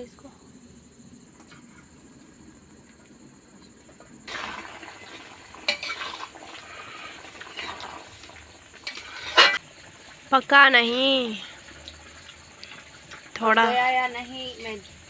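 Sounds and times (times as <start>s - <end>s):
curry bubbling and sizzling in wok: 2.4s - 15.0s.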